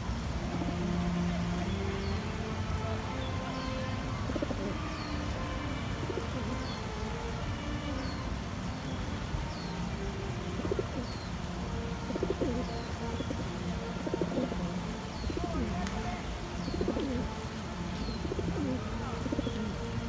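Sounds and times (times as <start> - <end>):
pigeons cooing: 2.7 - 7.2, 10.0 - 20.0.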